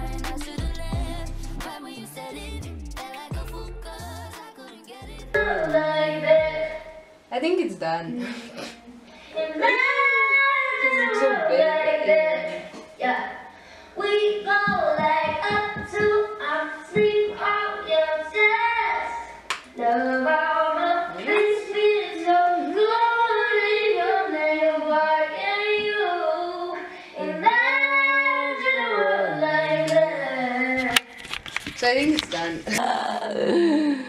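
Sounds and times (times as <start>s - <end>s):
young woman singing pop melody: 0.0s - 7.1s, 14.0s - 19.2s, 19.8s - 31.1s.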